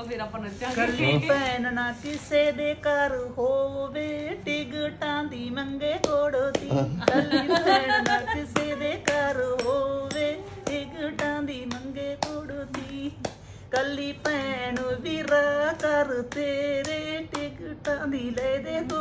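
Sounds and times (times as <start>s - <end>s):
woman singing folk verse: 0.6s - 19.0s
hand claps: 5.9s - 19.0s
woman laughing: 6.7s - 9.0s.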